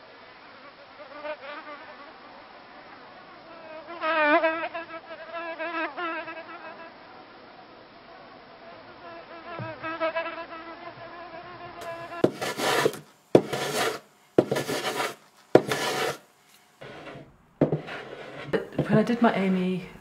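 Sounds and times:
hand tool rasping on wood: 0:11.8 - 0:16.2, 0:16.8 - 0:19.2.

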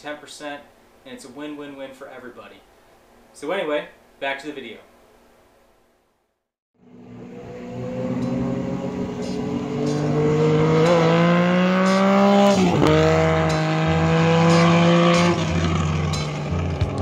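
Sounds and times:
engine accelerating hard: 0:06.8 - 0:17.0.

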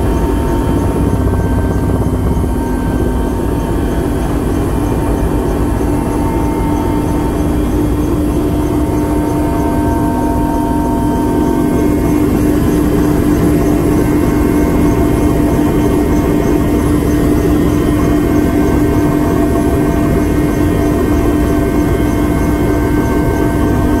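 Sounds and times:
aircraft engine drone: 0:00.0 - 0:24.0.

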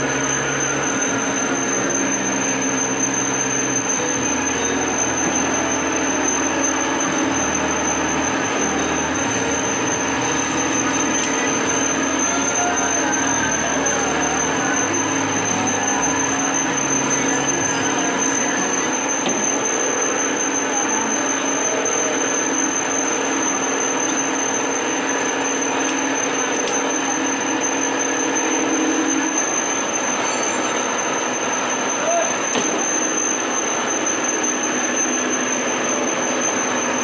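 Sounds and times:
high steady whine: 0:00.0 - 0:37.0
metal lathe humming: 0:00.0 - 0:37.0
workshop machine noise: 0:00.0 - 0:37.0.

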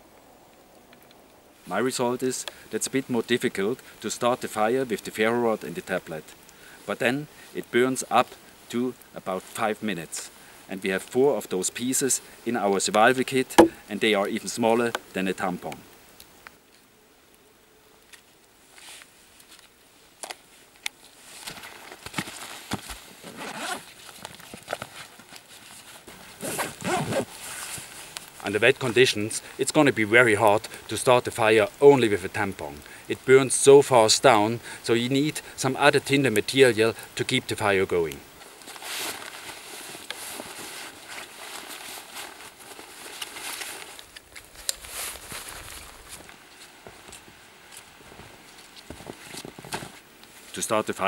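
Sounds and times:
zipper: 0:23.2 - 0:23.9, 0:26.3 - 0:27.6
fabric rustling: 0:38.4 - 0:50.5.

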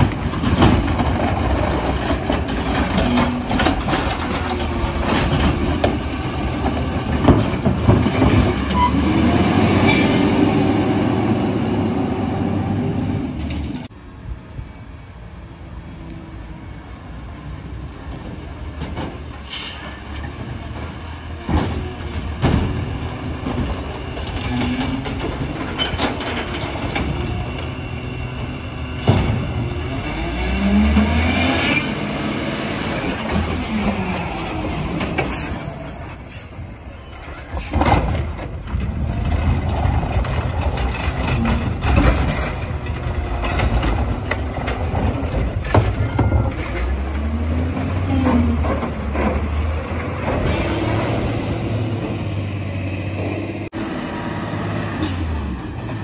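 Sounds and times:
hydraulic arm clanks and thumps: 0:00.0 - 0:08.9, 0:37.6 - 0:47.1.

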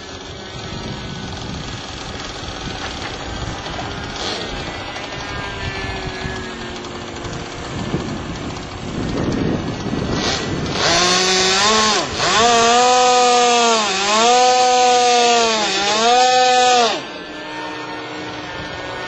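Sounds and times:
model airplane engine: 0:00.0 - 0:19.0.

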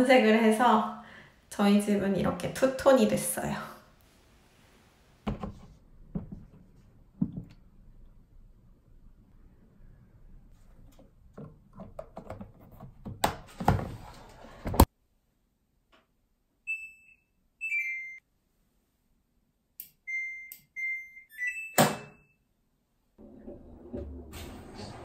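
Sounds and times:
control panel beeps: 0:16.7 - 0:18.2, 0:20.1 - 0:22.4.

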